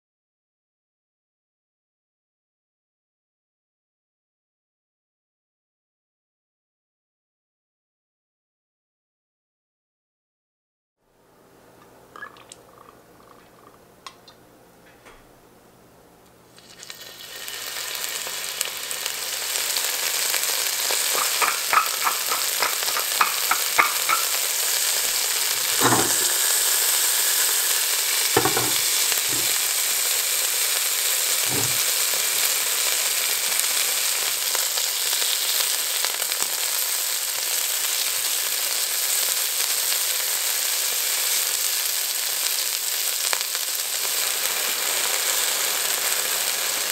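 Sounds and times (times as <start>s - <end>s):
meat sizzling in oil: 16.6s - 46.9s
pot and tongs knocking: 21.1s - 24.5s, 25.5s - 26.4s, 28.4s - 29.6s, 31.4s - 31.9s.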